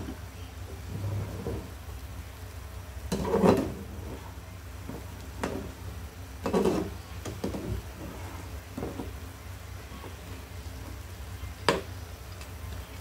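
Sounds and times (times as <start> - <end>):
sauce bubbling in a pan: 0.0 - 13.0
wooden spatula scraping a pan: 0.7 - 1.8, 3.1 - 9.2.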